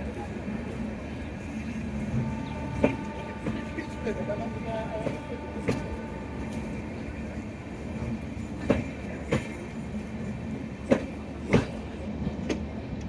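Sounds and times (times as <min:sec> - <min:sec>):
train coaches rumbling past: 0:00.0 - 0:13.0
wheels clacking over rail joint: 0:02.4 - 0:09.8.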